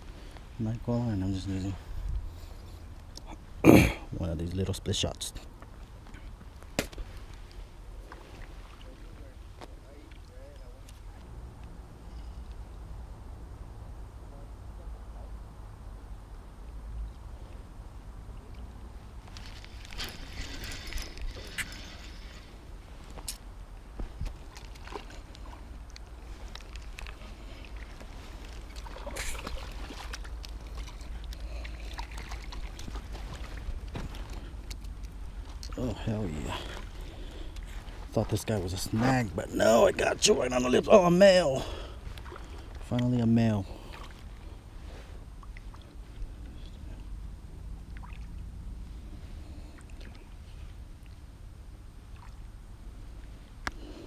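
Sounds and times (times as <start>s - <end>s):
wind rumble on microphone: 1.8s - 2.6s
water lapping against rocks: 24.0s - 43.1s
steady low rumble: 41.6s - 54.0s.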